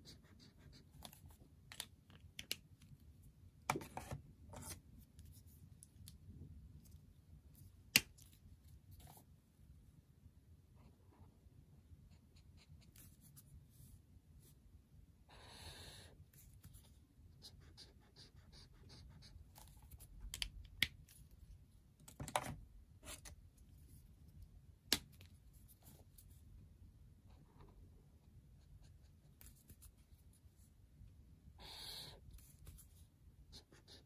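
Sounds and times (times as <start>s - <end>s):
highlighter scratching on paper: 0.0s - 1.1s, 15.3s - 19.7s, 31.6s - 34.0s.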